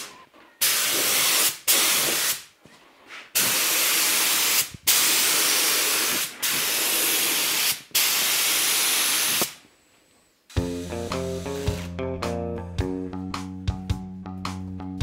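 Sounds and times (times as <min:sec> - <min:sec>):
compressed air hissing: 0:00.6 - 0:02.5, 0:03.3 - 0:09.6, 0:10.5 - 0:12.0.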